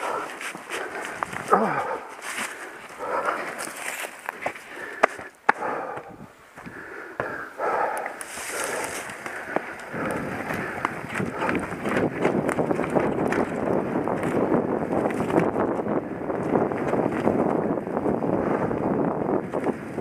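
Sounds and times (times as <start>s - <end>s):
bike tyres rolling over dirt: 0.0s - 5.3s, 8.2s - 20.0s
wind on microphone: 7.6s - 20.0s
bike clicking and rattling: 8.0s - 19.9s.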